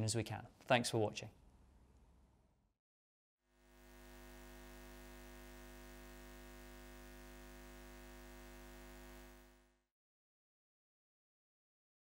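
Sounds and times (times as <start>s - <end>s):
electronic drone hum: 3.6s - 9.8s.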